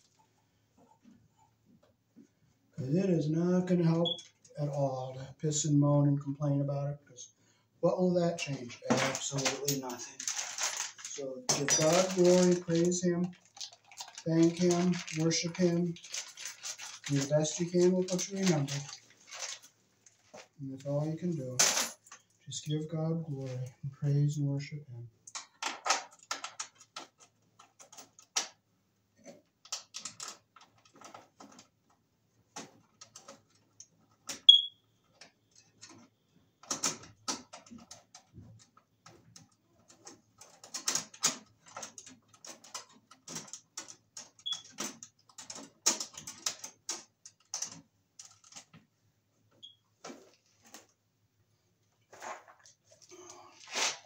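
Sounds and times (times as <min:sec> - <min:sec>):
cable rustling against metal box: 0:08.4 - 0:22.3, 0:29.2 - 0:48.9, 0:49.5 - 0:51.0, 0:51.9 - 0:54.0.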